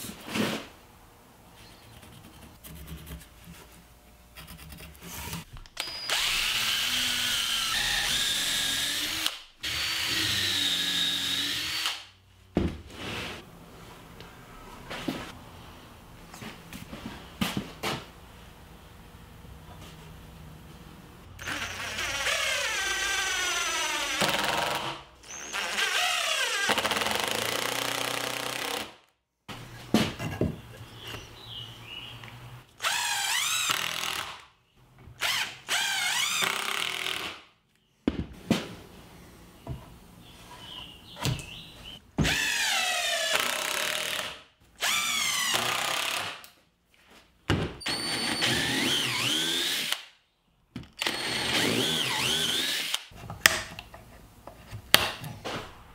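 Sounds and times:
drill boring into wood: 0:05.8 - 0:12.0, 0:21.4 - 0:28.9, 0:32.8 - 0:34.4, 0:42.3 - 0:46.3, 0:47.9 - 0:50.1, 0:51.0 - 0:53.1.

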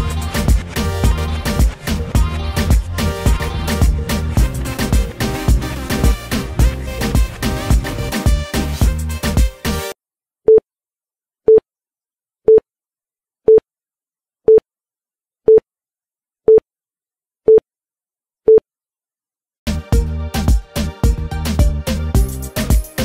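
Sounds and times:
background music: 0:00.0 - 0:10.0, 0:19.7 - 0:23.0.

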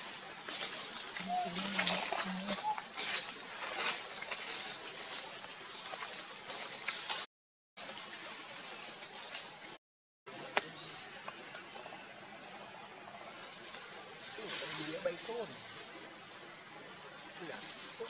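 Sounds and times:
high-pitched insect drone: 0:00.5 - 0:05.3.

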